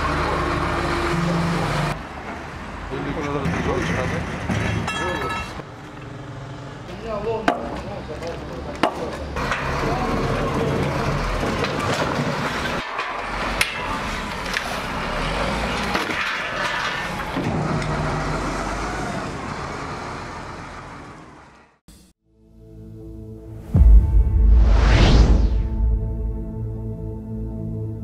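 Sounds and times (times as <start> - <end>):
diesel loader engine working: 0.0 - 4.5, 9.2 - 21.7.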